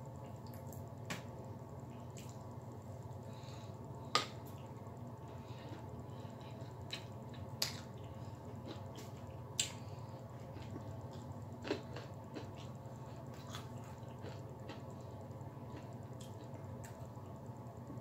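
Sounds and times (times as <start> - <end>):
steady low hum: 0.0 - 18.0
person chewing and smacking: 5.6 - 17.0.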